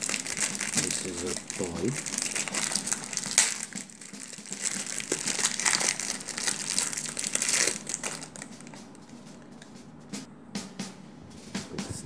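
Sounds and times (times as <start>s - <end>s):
plastic wrapper crinkling: 0.0s - 8.8s.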